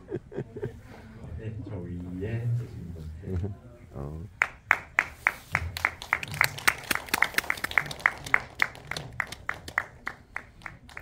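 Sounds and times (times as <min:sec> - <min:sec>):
small audience applauding: 0:04.4 - 0:11.0.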